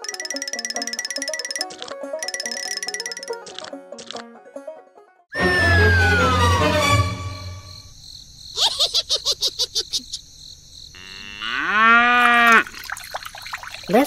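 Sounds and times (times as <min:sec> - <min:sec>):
descending whistle slide: 0:05.3 - 0:07.8
cow mooing: 0:11.0 - 0:12.7.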